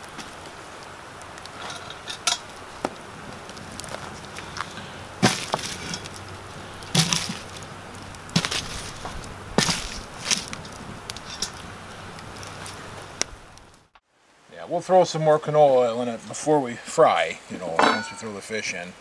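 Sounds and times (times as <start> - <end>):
sharp pops from fire: 0.0 - 14.0
campfire crackling: 0.0 - 19.0.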